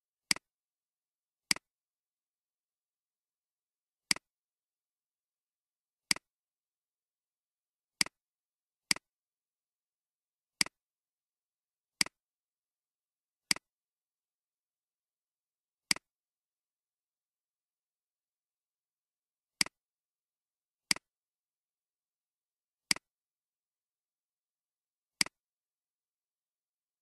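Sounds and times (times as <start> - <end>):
computer mouse clicks: 1.5 - 1.7, 4.1 - 4.3, 6.1 - 6.3, 15.9 - 16.1.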